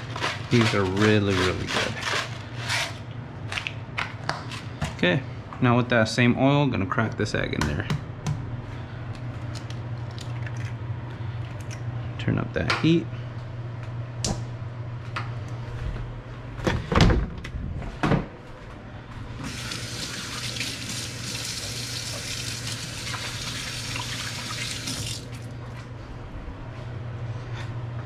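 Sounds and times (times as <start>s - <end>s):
faucet running into steel sink: 19.4s - 25.3s.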